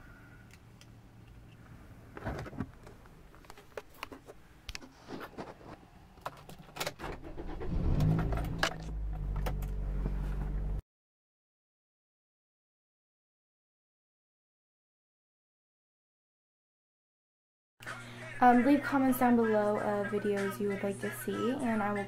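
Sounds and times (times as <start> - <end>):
car engine cranking and idling: 7.0 - 10.8.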